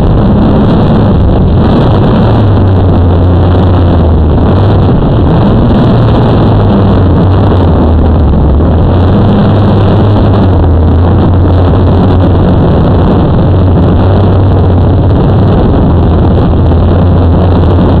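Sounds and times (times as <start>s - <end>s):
drone propellers whirring: 0.0s - 18.0s
low hum: 0.0s - 18.0s.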